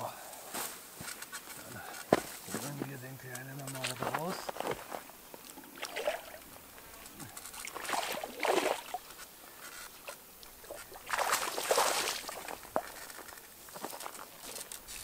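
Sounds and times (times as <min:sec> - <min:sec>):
water splashing and sloshing: 0:04.6 - 0:15.0.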